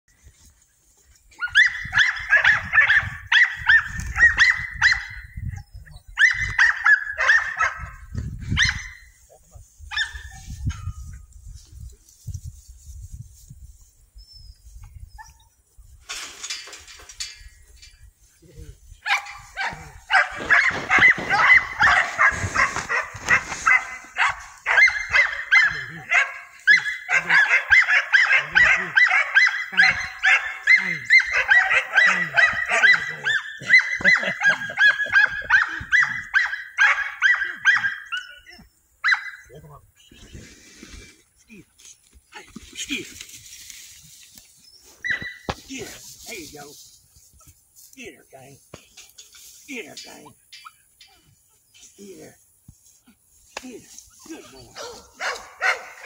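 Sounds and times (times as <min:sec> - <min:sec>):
dog barking in high-pitched yips: 0:01.4 - 0:05.6, 0:06.2 - 0:07.9, 0:08.5 - 0:09.1, 0:09.9 - 0:10.6, 0:19.0 - 0:39.4, 0:45.0 - 0:45.6, 0:54.8 - 0:56.0.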